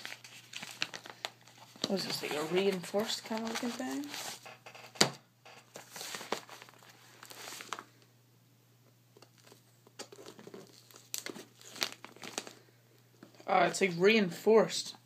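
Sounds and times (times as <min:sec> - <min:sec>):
envelope rustling and crinkling: 0:00.0 - 0:08.0, 0:09.4 - 0:12.6.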